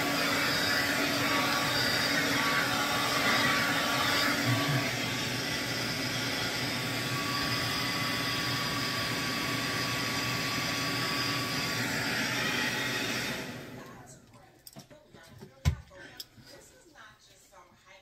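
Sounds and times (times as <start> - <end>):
hair dryer running: 0.0 - 14.1.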